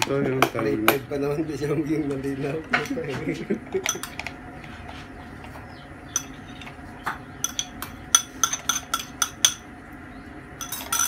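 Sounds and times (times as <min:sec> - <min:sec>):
tableware clinking: 0:03.8 - 0:04.3, 0:06.1 - 0:06.8, 0:07.4 - 0:09.7, 0:10.6 - 0:11.0.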